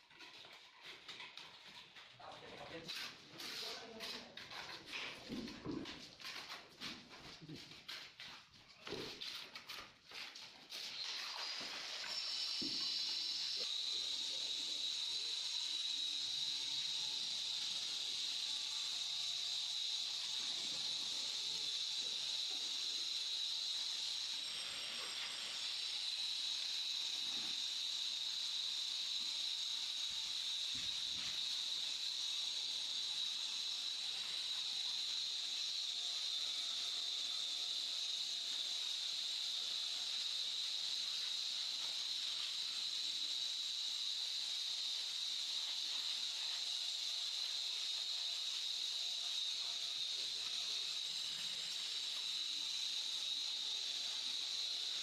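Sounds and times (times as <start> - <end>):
trowel scraping mortar: 2.9 - 13.6
steady high hiss: 10.8 - 55.0.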